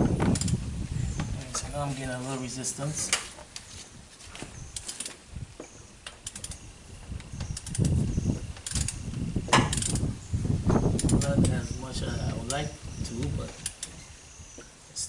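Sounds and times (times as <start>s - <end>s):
engine knocks and rubbing: 0.0s - 14.8s
socket ratchet clicking: 6.0s - 6.6s, 7.4s - 8.0s, 8.6s - 9.0s, 9.7s - 10.1s, 11.0s - 11.5s, 13.6s - 14.0s.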